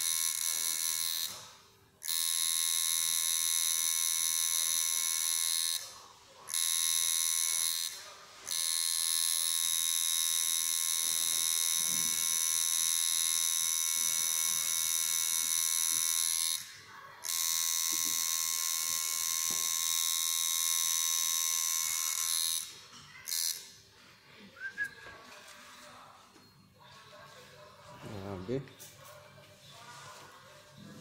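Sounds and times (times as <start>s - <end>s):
tattoo machine buzzing: 0.0s - 23.8s.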